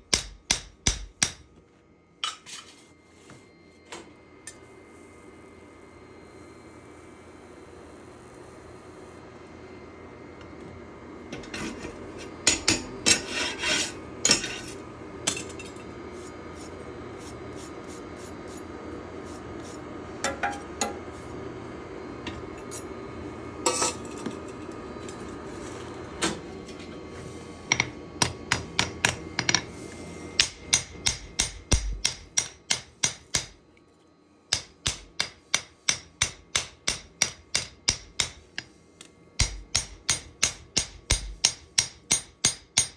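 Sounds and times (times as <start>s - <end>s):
hammer striking steel on anvil: 0.0s - 1.5s, 12.4s - 13.3s, 27.7s - 29.6s, 30.4s - 33.6s, 34.5s - 38.7s, 39.4s - 42.9s.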